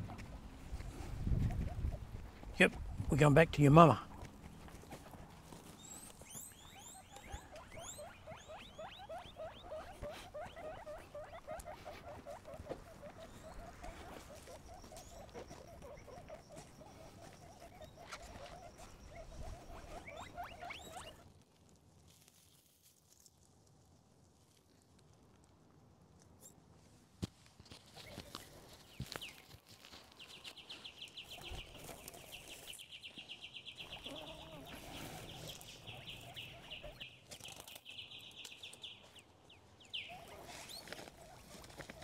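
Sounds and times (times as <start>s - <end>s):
guinea pig squeaking: 5.7s - 21.2s, 27.9s - 28.4s, 31.2s - 32.8s, 33.8s - 38.4s, 40.0s - 42.0s.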